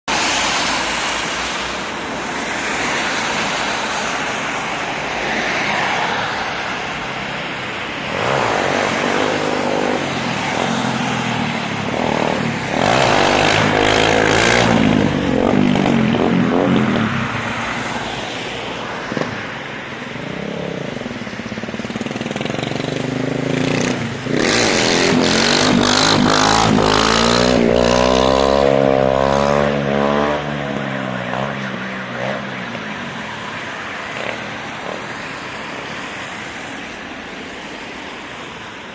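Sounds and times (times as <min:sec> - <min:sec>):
cars passing on wet road: 0:00.1 - 0:38.9.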